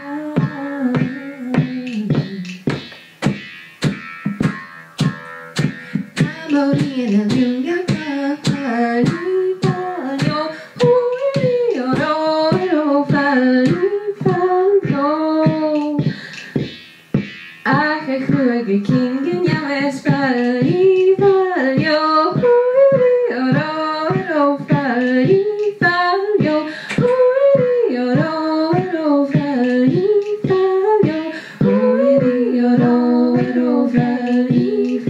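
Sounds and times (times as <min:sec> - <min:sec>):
woman singing into a microphone: 0:00.0 - 0:02.8, 0:05.9 - 0:16.7, 0:17.7 - 0:35.0
beat of sharp clicks: 0:00.4 - 0:35.0.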